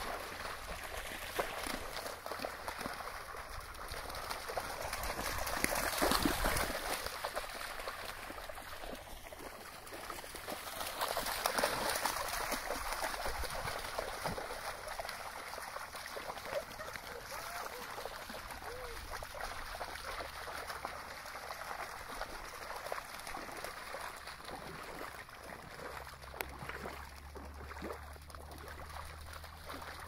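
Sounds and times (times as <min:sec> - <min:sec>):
dogs splashing through water: 0:00.0 - 0:30.0.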